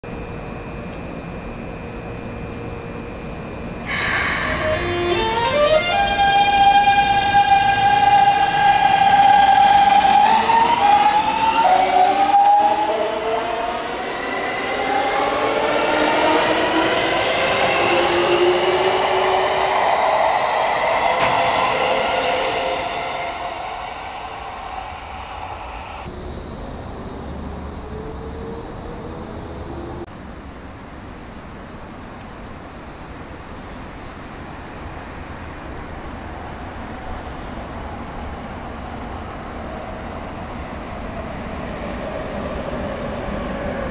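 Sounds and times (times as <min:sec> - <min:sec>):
train rolling noise: 0:00.1 - 0:30.8, 0:31.6 - 0:43.9
electric train motors whining: 0:03.9 - 0:26.1.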